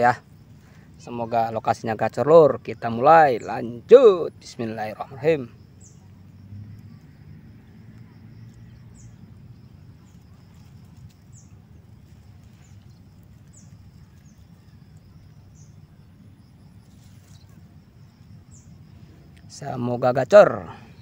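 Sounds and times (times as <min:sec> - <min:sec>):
bird chirping: 0:00.0 - 0:21.0
insect hum: 0:00.0 - 0:21.0
low rumble: 0:05.0 - 0:19.5.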